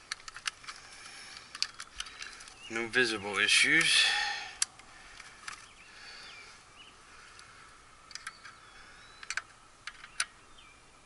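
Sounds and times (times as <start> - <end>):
faint bird chirps: 5.6 - 11.0.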